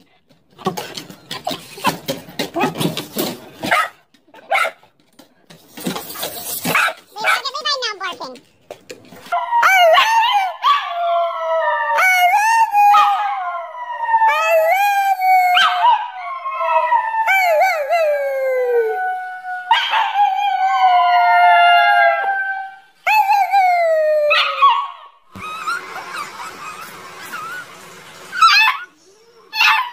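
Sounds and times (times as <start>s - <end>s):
husky howling: 24.3s - 29.9s.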